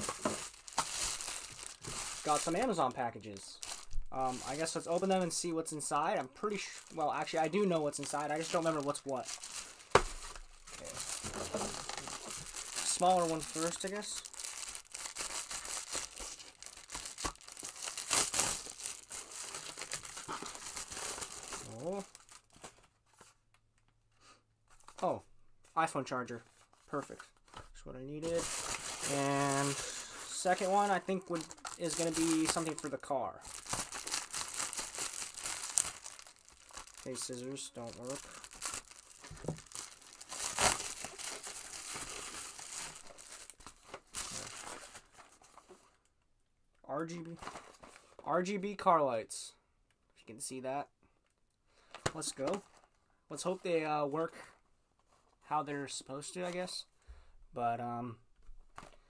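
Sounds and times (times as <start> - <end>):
plastic bag tearing and crinkling: 0.0 - 22.7, 28.2 - 45.0.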